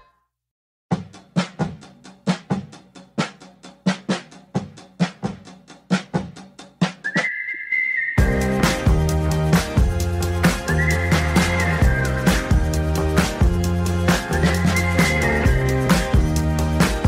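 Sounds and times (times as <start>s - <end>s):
drum beat: 0.9s - 7.0s, 8.2s - 17.0s
high whistle-like tone: 7.0s - 8.5s, 10.5s - 12.7s, 14.2s - 16.2s.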